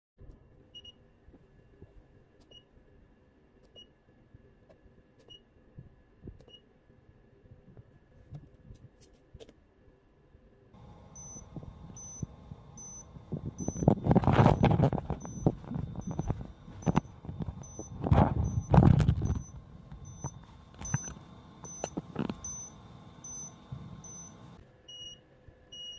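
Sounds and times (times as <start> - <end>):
electronic buzzer beeps: 10.8 - 25.2
rustling handling noise: 13.2 - 24.6.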